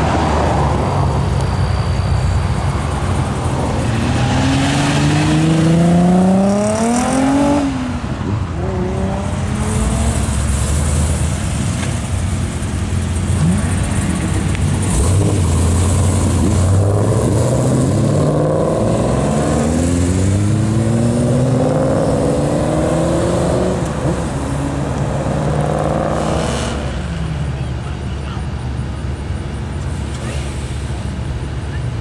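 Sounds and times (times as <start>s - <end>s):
car engine accelerating hard: 3.4s - 27.6s.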